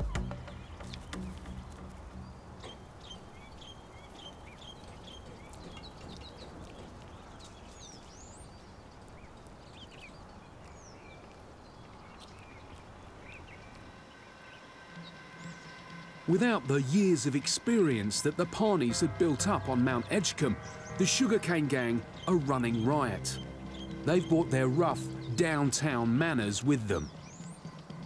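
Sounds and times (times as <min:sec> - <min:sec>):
outdoor background hiss: 0:00.0 - 0:28.0
small birds chirping: 0:00.0 - 0:28.0.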